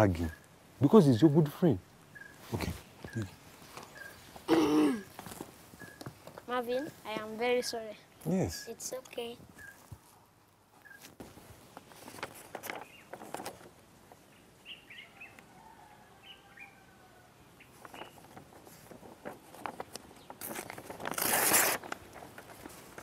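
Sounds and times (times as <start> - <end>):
faint bird chirps: 0.0 - 0.6, 2.1 - 4.4, 5.8 - 6.1, 9.5 - 9.9, 10.8 - 11.1
paper rustling: 11.0 - 13.8, 17.7 - 23.0.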